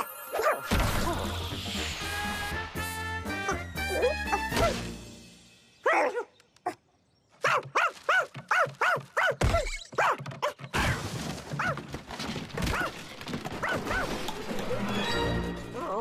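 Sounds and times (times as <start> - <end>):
cartoon dog barking: 7.4 - 10.6.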